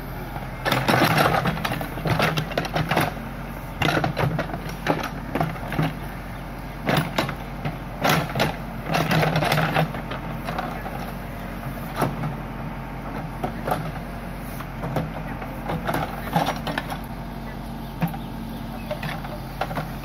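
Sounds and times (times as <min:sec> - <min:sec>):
diesel engine running: 0:00.0 - 0:20.0.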